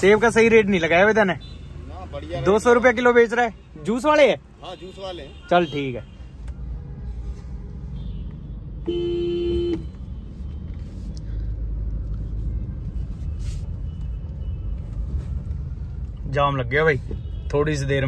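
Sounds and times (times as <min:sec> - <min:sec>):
car rumbling in traffic: 0:00.0 - 0:18.0
car horn blast: 0:08.0 - 0:10.0.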